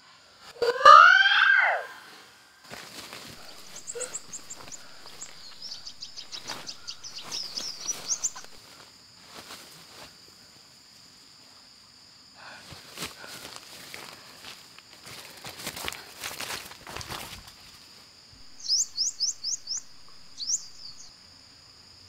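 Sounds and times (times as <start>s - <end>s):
high insect drone: 0.0s - 22.0s
footsteps in leafy undergrowth: 2.6s - 10.3s, 12.8s - 18.0s
bird chirping rapidly: 3.5s - 8.6s, 18.5s - 21.1s.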